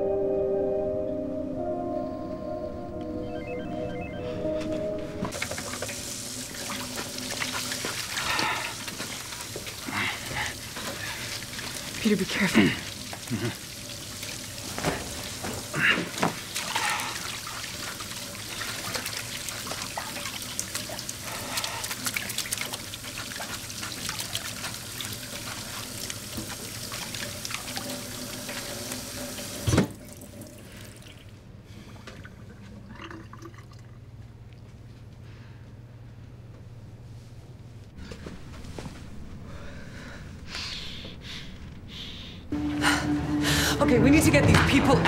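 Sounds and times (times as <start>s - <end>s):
low hum: 0.0s - 8.9s, 35.7s - 45.0s
tap water running into sink: 5.3s - 31.2s.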